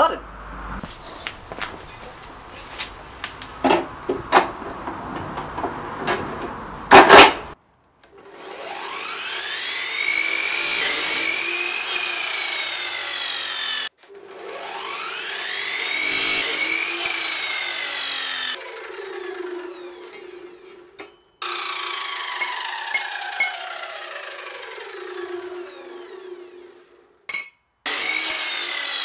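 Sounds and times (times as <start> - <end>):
chop saw grinding through steel: 6.9 - 29.0.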